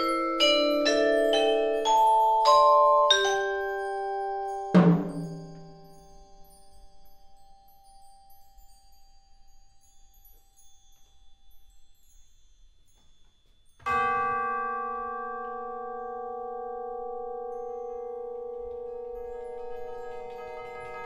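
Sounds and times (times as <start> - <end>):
ringing mallet stroke: 1.6 - 6.5.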